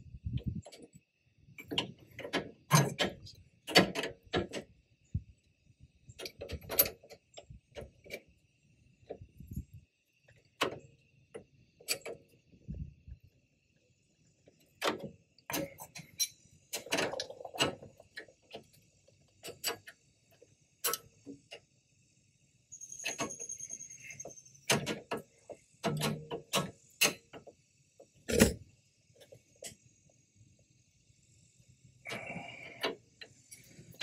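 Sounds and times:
short high squeak: 22.7 - 24.6.

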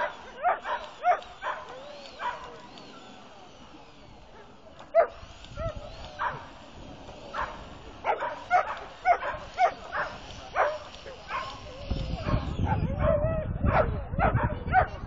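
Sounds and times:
dog barking in high yelps: 0.0 - 2.6, 4.4 - 6.5, 7.3 - 11.6.

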